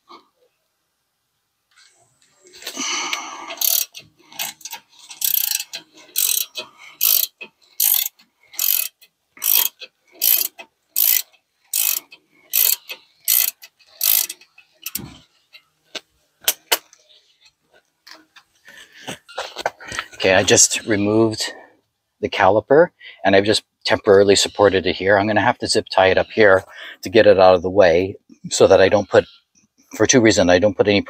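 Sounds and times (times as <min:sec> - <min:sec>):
ratchet wrench ratcheting: 0:03.5 - 0:15.6.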